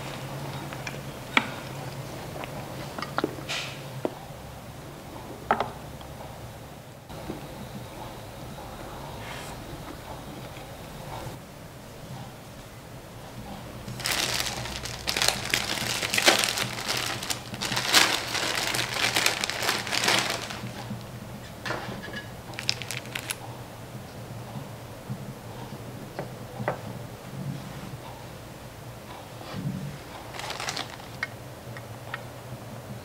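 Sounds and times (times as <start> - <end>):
plastic bag crinkling: 13.9 - 21.1, 22.5 - 23.4, 30.2 - 31.3.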